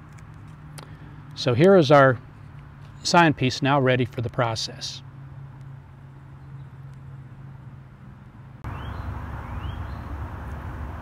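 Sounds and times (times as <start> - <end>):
bird chirping: 6.1 - 7.2, 8.6 - 10.2.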